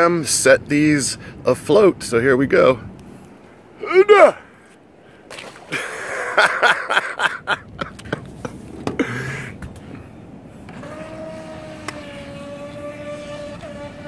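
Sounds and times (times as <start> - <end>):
boat hull splashing water: 5.2 - 6.5
electric motor whine: 10.6 - 14.0.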